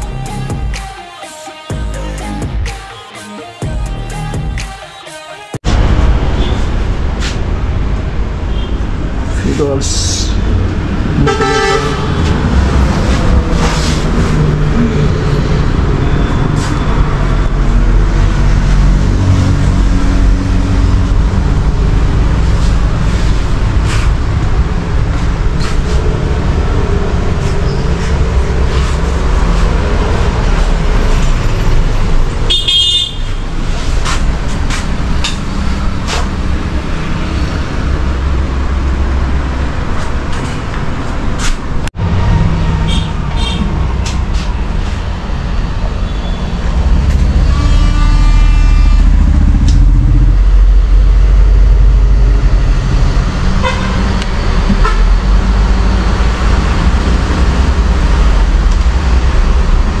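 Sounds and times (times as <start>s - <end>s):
road traffic rumble: 5.6s - 60.0s
vehicle horns honking: 8.5s - 8.9s, 11.2s - 12.3s, 32.4s - 33.6s, 42.6s - 43.8s, 47.2s - 50.0s, 53.6s - 55.2s.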